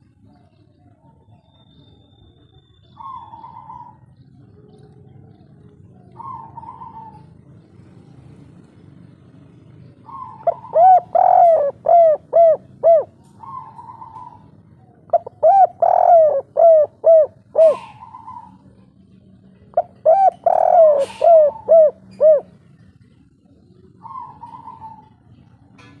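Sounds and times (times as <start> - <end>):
dove cooing: 0.0 - 26.0.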